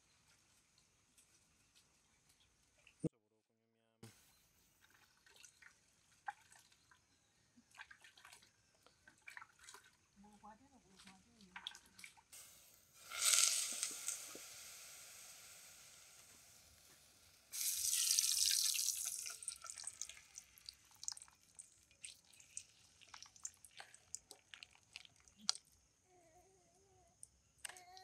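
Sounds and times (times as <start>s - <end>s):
oil pouring into a pot: 12.4s - 25.4s
oil dripping: 16.2s - 25.8s.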